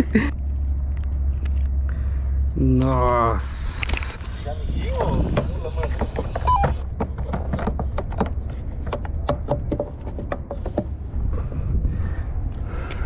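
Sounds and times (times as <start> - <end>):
clicks and knocks on plastic kayak: 5.3 - 10.9
wind on microphone: 11.0 - 12.9.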